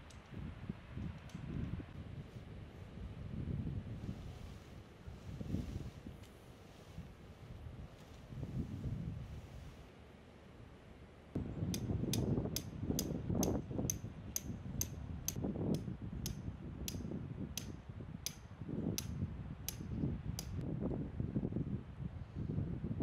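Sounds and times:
wind buffeting microphone: 0.0s - 9.8s, 11.4s - 23.0s
light sharp ticks: 11.7s - 20.6s.

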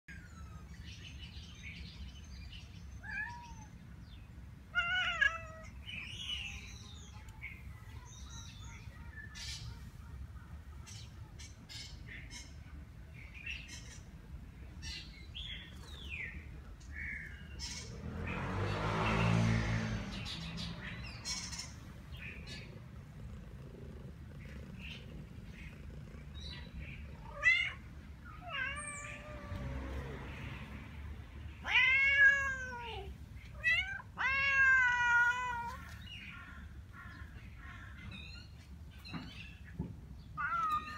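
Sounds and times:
cats meowing: 2.9s - 3.9s, 4.7s - 9.9s, 20.8s - 30.4s, 31.6s - 37.4s, 40.3s - 40.9s.

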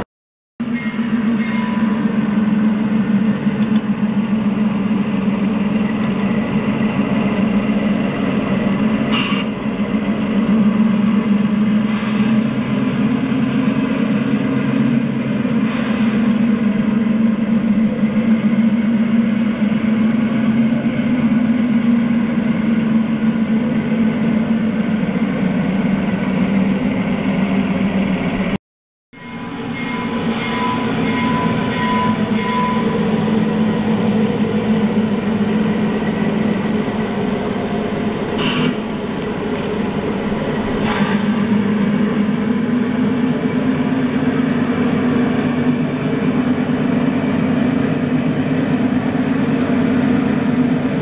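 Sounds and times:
small locomotive engine humming: 0.6s - 28.6s, 29.2s - 51.0s.

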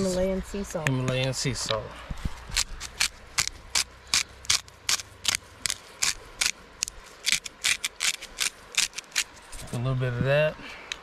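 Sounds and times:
salt grinder ratcheting crunch: 2.5s - 9.3s.

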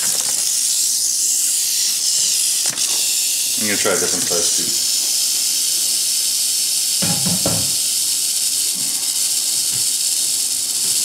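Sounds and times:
rattlesnake rattling: 0.0s - 11.0s
knocks: 7.0s - 7.8s.

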